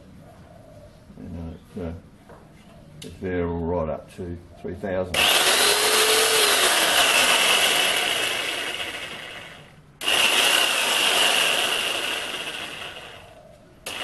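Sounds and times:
reciprocating saw whining: 5.1s - 14.0s.

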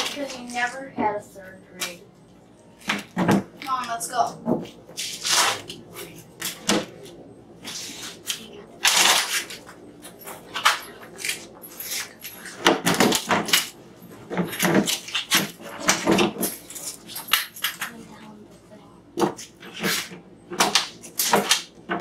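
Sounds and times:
folding chairs clattering: 8.9s - 17.9s.

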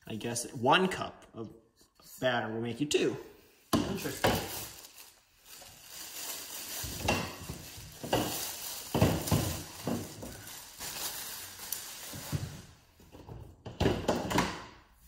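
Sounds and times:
plastic bag rustling: 3.9s - 12.9s.

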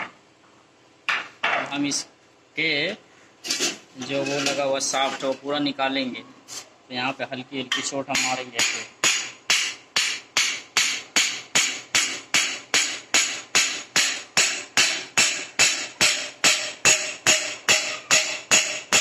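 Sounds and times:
hammer tapping steel shaft: 7.7s - 19.0s.

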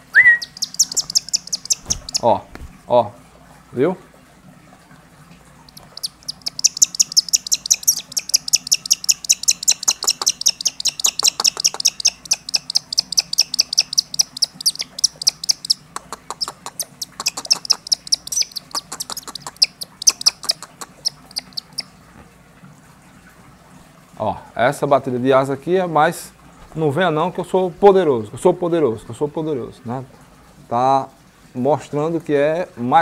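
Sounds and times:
young hawk chirping: 0.2s - 2.4s, 5.7s - 21.9s.

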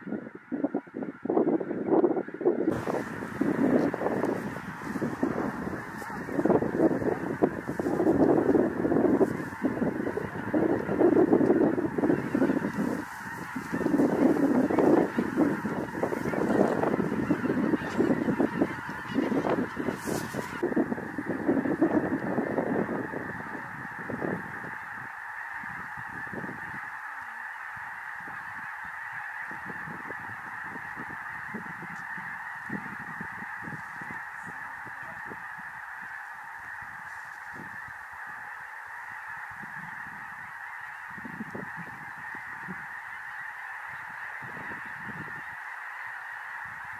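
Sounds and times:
geese honking: 1.0s - 46.9s.

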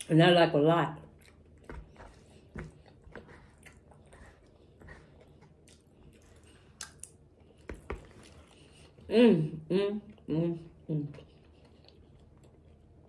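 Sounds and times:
close-up chewing: 1.0s - 9.1s, 11.1s - 13.0s.

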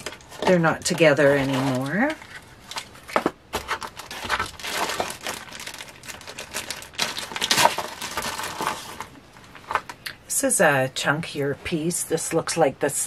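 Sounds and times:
wrapping crinkling and rustling: 0.0s - 10.1s.

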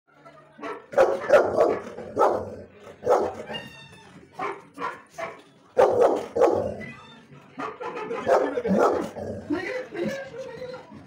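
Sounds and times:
dog barking: 0.6s - 3.6s, 4.4s - 6.8s, 7.6s - 9.2s.

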